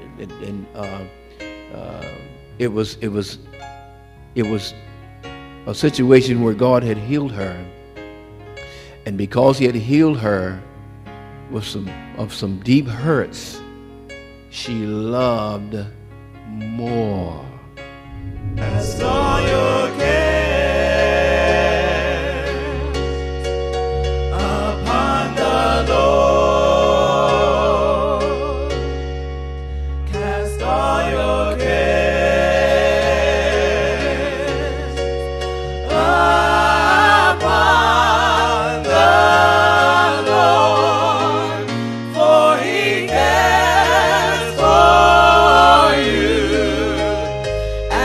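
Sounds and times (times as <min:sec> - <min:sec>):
bass line: 0:18.1 - 0:20.8
singers holding notes with vibrato: 0:18.1 - 0:22.9, 0:35.8 - 0:48.0.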